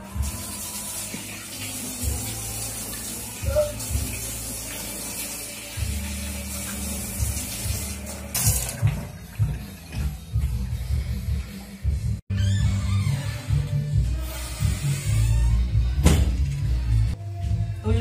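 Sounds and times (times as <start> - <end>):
tap water running into sink: 0.0 - 10.7.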